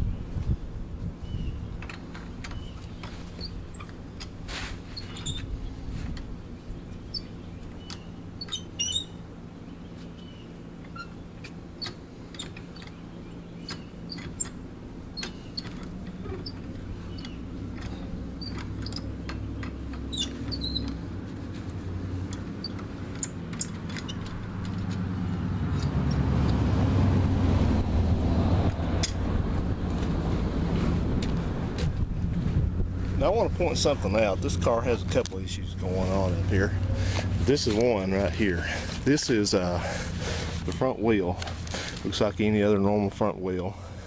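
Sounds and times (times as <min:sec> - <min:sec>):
lug nuts clicking metallic: 0:10.8 - 0:21.2, 0:21.8 - 0:26.6
rising rush of noise: 0:24.5 - 0:34.1.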